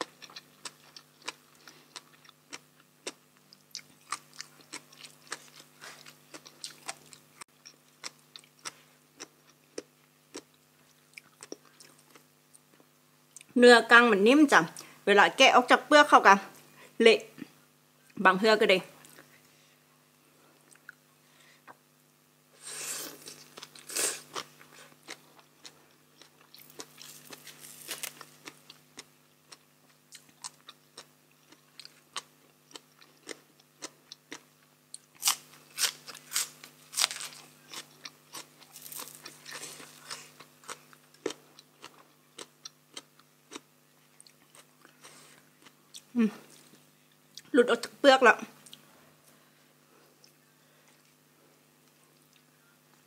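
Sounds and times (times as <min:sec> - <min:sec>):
crisp crunching while eating: 0:00.0 - 0:12.3, 0:22.6 - 0:46.9.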